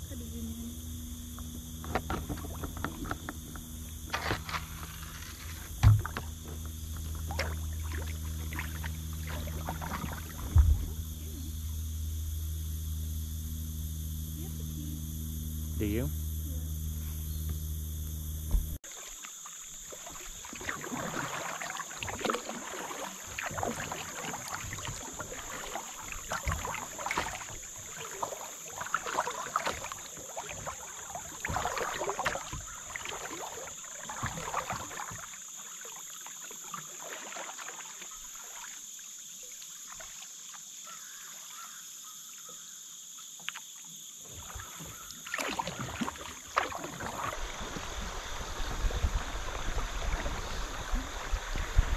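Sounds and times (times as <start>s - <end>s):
short low hum: 0.0s - 18.8s
paddle splashing in water: 1.0s - 16.1s, 18.4s - 51.9s.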